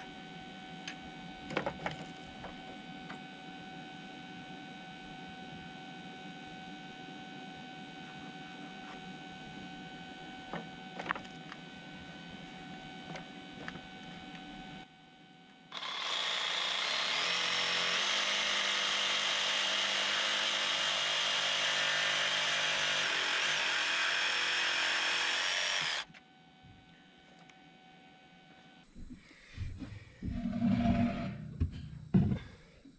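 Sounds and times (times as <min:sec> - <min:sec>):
jigsaw cutting a board: 0:15.7 - 0:26.1
faint steady hum: 0:26.0 - 0:32.9.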